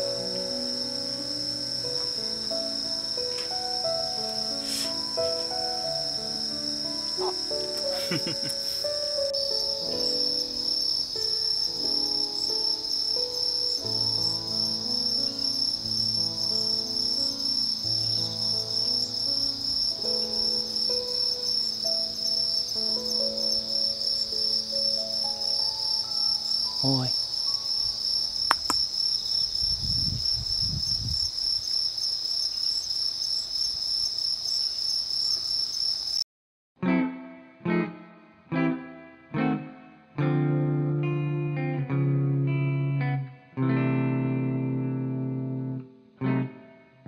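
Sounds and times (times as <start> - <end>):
faint music: 0.0 - 28.4
insects chirping: 0.0 - 36.2
click: 28.5 - 28.8.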